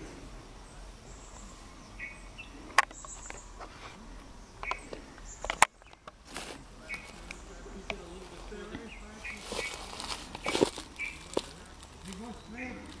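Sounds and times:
sharp clicks: 2.7s - 3.5s, 4.6s - 6.2s.

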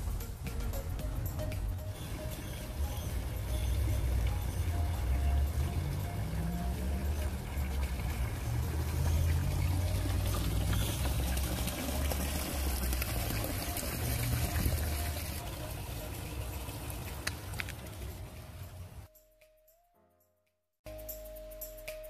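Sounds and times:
fountain water splashing into basin: 1.5s - 19.1s.

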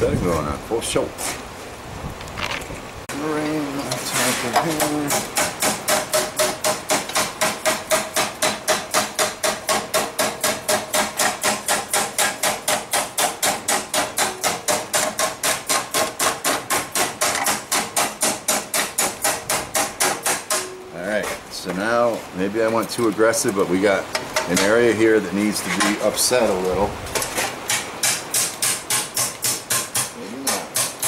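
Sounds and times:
hammer clanging on steel: 4.5s - 21.4s, 24.1s - 24.9s.

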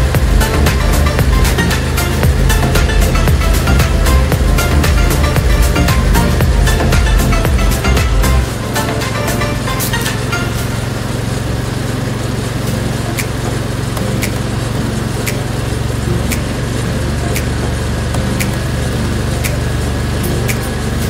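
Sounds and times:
sharp ticking: 0.0s - 10.9s, 12.8s - 20.9s
vehicle engine running: 0.0s - 21.0s.

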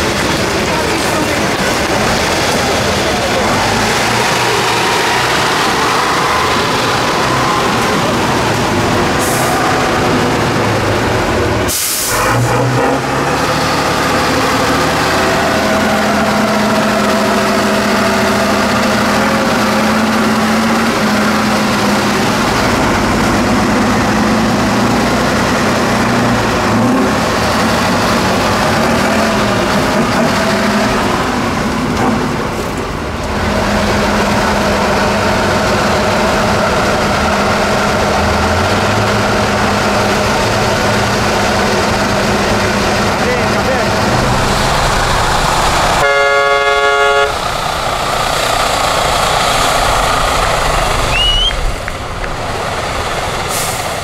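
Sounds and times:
truck diesel engine under load: 0.0s - 54.0s
sharp air hiss: 11.7s - 12.3s.

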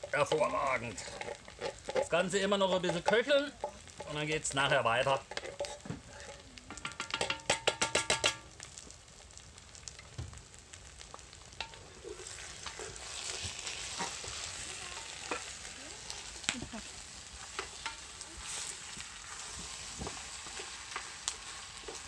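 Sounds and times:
spoon scraping tin can: 0.0s - 4.2s, 5.2s - 5.9s
food sizzling in pot: 0.0s - 22.0s
spoon knocking against pot: 6.8s - 8.4s.

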